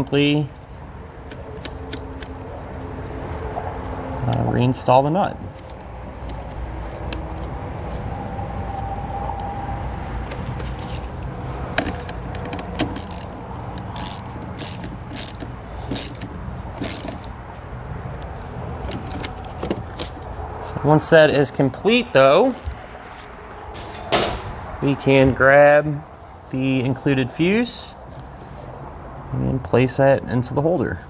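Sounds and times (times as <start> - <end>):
ratchet clicking: 11.9 - 17.3.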